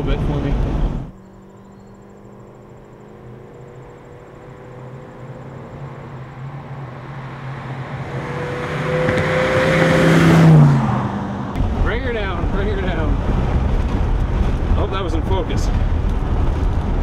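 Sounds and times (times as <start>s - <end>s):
car passing by: 1.6s - 11.6s.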